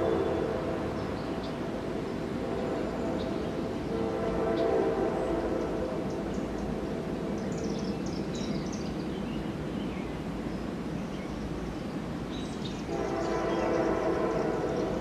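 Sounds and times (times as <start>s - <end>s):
locomotive horn: 0.0s - 1.2s, 3.9s - 6.1s, 12.9s - 15.0s.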